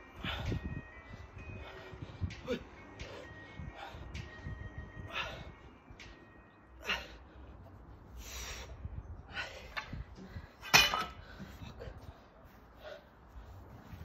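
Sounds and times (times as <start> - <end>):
man breathing heavily: 0.0 - 14.0
barbell dropped onto grass: 10.6 - 11.2.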